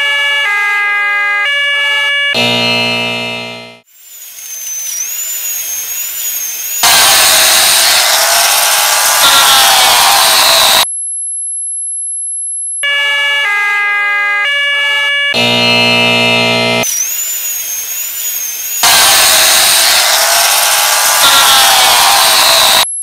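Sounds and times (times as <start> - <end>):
harsh low buzzer: 2.1 - 3.9, 4.5 - 10.8, 14.5 - 22.9
stepped electronic beeps: 2.4 - 10.9, 15.4 - 23.0
very high-pitched tone: 2.4 - 10.9, 15.3 - 23.0
hissing noise with siren-like tones: 3.8 - 10.9, 15.4 - 22.9.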